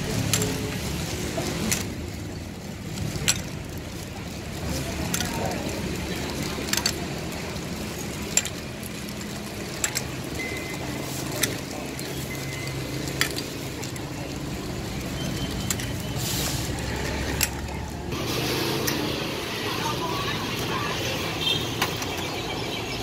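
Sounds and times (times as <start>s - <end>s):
ice cubes clicking: 0.0s - 17.9s.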